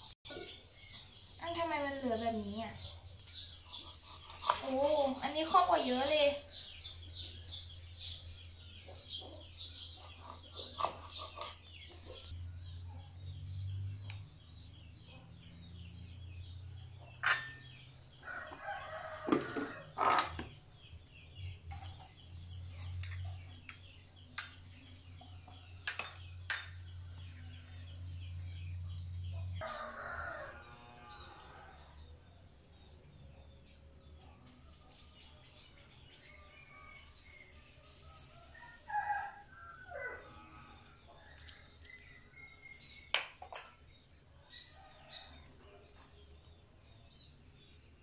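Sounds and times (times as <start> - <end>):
rooster crowing: 18.2 - 19.9, 29.6 - 31.6.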